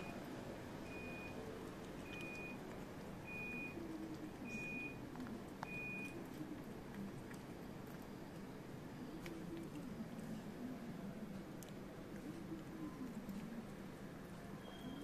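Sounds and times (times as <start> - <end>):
low steady background rumble: 0.0 - 15.0
vehicle reversing alarm beeping: 0.8 - 1.4, 2.0 - 2.6, 3.2 - 3.8, 4.4 - 5.0, 5.6 - 6.2.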